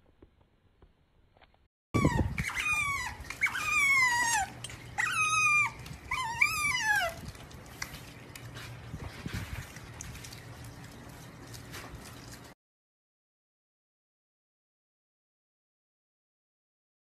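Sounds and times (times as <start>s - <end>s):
otter squeaking: 2.0s - 9.9s.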